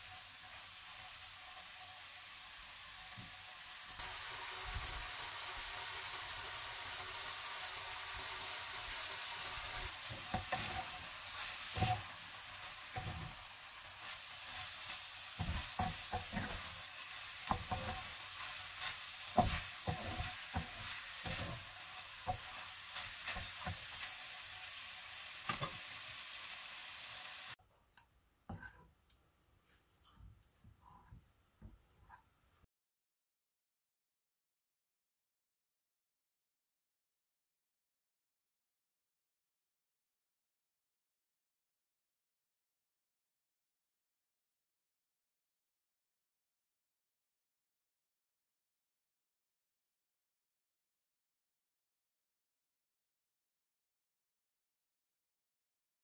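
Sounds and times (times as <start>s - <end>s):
meat sizzling in a frying pan: 0.0s - 27.6s
spatula scraping and knocking pan: 9.7s - 24.2s, 25.4s - 25.9s, 28.5s - 28.9s.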